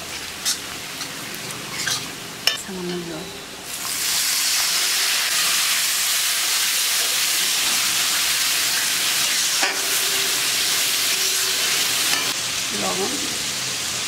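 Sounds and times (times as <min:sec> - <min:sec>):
pan hissing loudly: 0:03.7 - 0:13.7.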